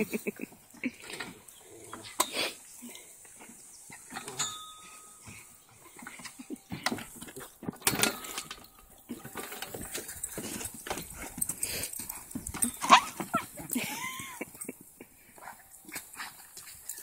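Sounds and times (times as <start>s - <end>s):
paws scrabbling in mulch: 9.1s - 17.0s.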